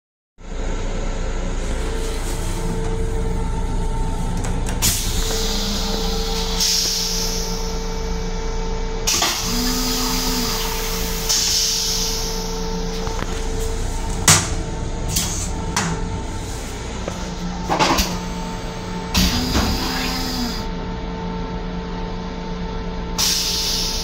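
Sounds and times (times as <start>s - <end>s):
train interior hum and rumble: 0.4s - 24.0s
air hissing: 4.8s - 7.9s, 9.1s - 12.6s.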